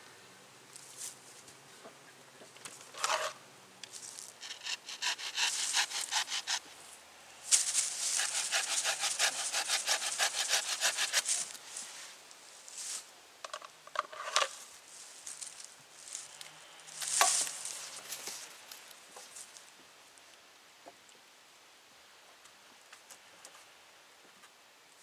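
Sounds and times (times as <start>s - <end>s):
wooden pole rasping: 4.4s - 6.7s, 7.6s - 11.6s.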